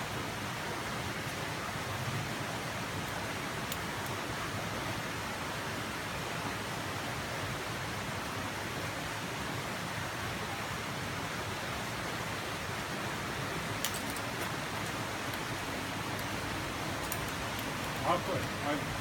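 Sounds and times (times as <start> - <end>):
steady rushing noise: 11.4 - 19.0.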